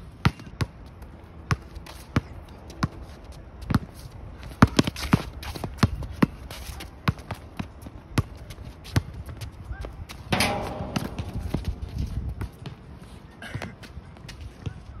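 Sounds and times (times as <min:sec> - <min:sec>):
sneakers shuffling and scuffing: 0:01.6 - 0:15.0
basketball bouncing on hard court: 0:10.3 - 0:12.8.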